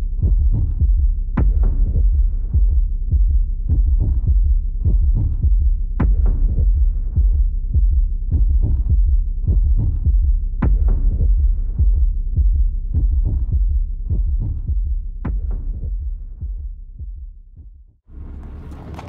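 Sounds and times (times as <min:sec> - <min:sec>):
deep throbbing pulse: 0:00.0 - 0:19.0
low drone: 0:18.1 - 0:19.0.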